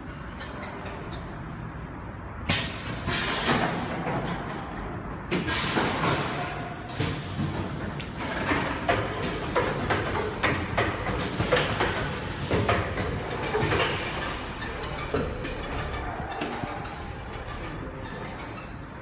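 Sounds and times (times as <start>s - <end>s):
pneumatic hisses and clunks: 2.5s - 15.7s.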